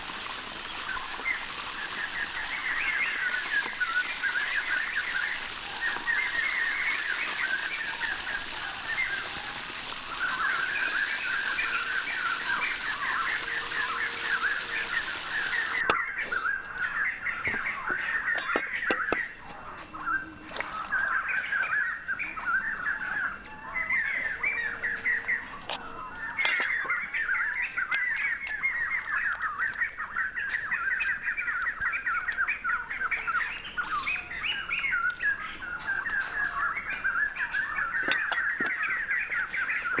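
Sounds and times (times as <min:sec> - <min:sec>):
fish sizzling in hot oil: 0:00.0 - 0:18.9
birds chirping: 0:00.0 - 0:40.0.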